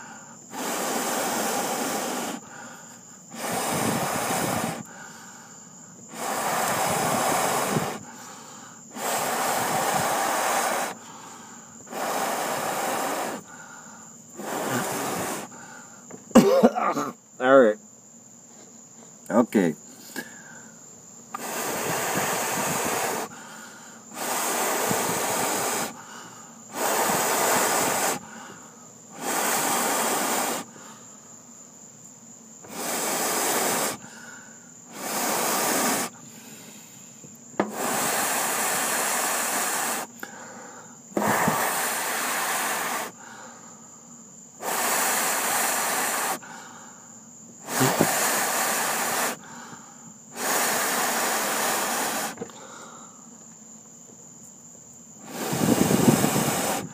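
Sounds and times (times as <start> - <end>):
person blowing on charcoal: 0.0 - 17.1, 21.3 - 31.5, 32.5 - 43.6, 44.3 - 46.9, 47.5 - 53.1, 55.2 - 56.9.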